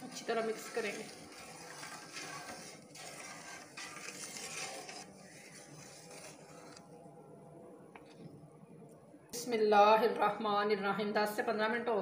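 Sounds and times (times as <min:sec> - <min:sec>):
spatula scraping pot: 0:00.0 - 0:06.8
liquid swishing in pot: 0:00.0 - 0:07.0.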